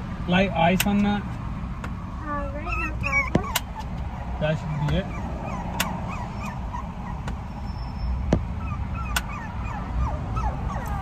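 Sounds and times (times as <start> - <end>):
car engine idling: 0.0 - 11.0
puppy whining: 2.4 - 11.0.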